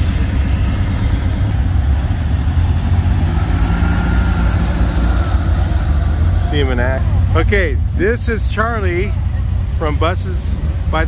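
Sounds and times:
car engine running: 0:00.0 - 0:11.0.

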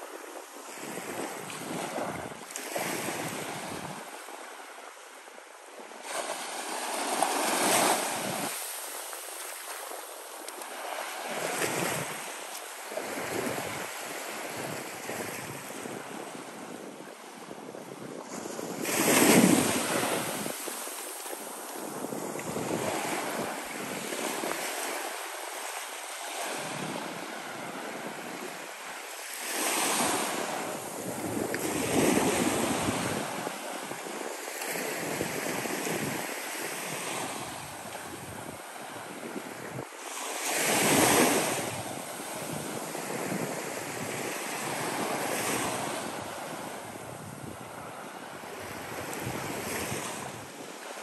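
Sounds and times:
small waves breaking on beach: 0:00.0 - 0:51.0.

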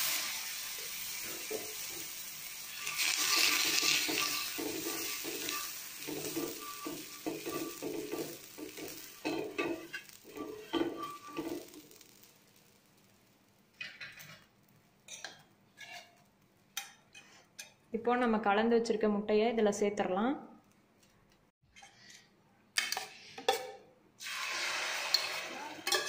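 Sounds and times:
butter sizzling on hot pan: 0:00.0 - 0:17.3
spoon scraping across pan: 0:01.1 - 0:12.8, 0:15.1 - 0:17.8.

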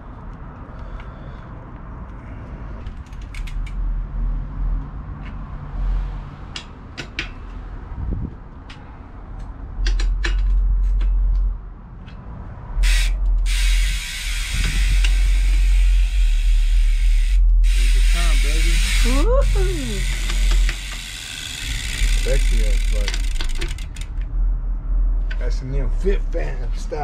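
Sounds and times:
metallic clicks of bike parts: 0:02.8 - 0:03.8, 0:06.5 - 0:07.6, 0:08.5 - 0:16.4, 0:20.0 - 0:24.3
loud steady hiss: 0:12.8 - 0:19.2.

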